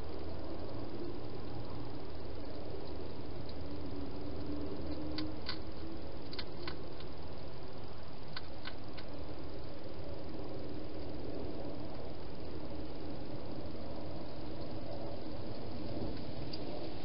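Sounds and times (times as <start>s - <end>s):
steady hiss and low hum: 0.0s - 17.0s
hedgehog clicks: 4.9s - 5.7s, 6.3s - 7.1s, 8.3s - 9.1s.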